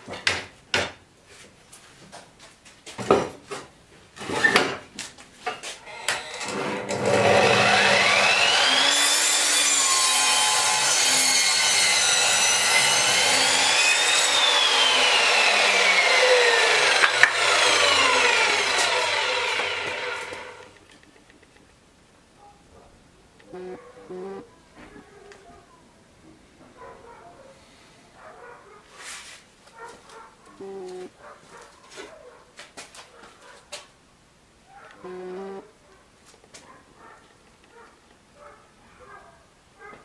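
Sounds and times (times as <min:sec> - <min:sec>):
saw blade cutting wood: 0:05.8 - 0:20.8
mitre saw motor whine: 0:05.9 - 0:20.7.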